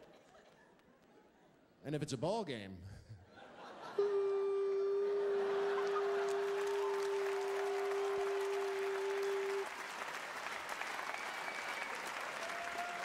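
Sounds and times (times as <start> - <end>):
whistles: 4.0 - 9.8, 11.0 - 12.2
audience applauding and cheering: 4.0 - 13.0.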